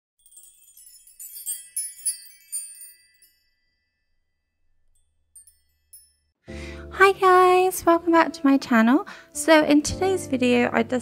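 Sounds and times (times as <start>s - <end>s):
tinkling chime jingle: 0.2s - 6.4s.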